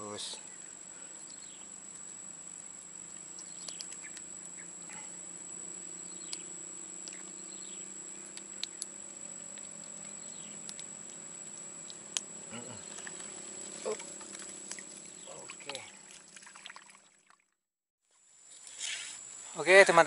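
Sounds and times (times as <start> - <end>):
insects droning: 0.0 - 17.2, 18.1 - 20.0
faint clicks: 3.1 - 4.3.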